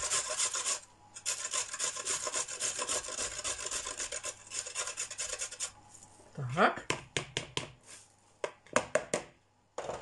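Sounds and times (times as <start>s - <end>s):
carrot grated on metal grater: 0.0s - 5.8s.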